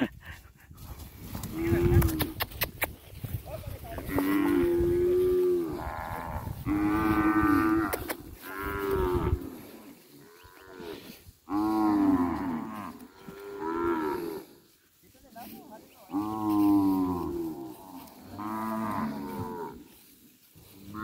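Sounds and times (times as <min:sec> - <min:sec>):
cattle mooing: 0:04.0 - 0:14.5, 0:16.1 - 0:19.8.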